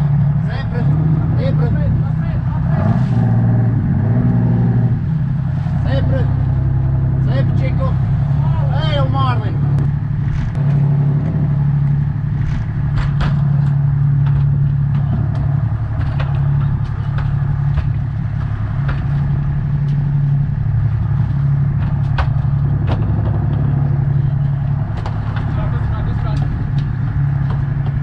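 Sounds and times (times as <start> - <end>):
boat engine droning: 0.0 - 28.0
sharp knocks and clicks: 9.7 - 28.0.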